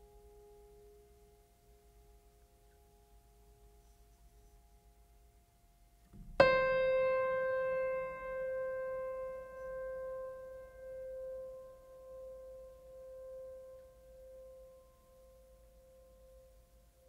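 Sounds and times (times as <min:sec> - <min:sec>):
piano note ringing: 0:06.2 - 0:16.4.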